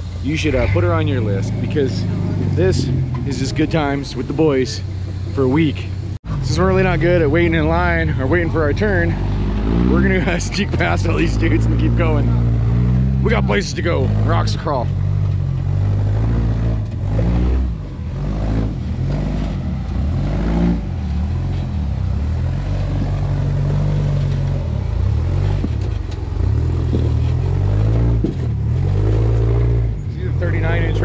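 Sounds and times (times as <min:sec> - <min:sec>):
buggy engine revving: 0:00.0 - 0:31.0.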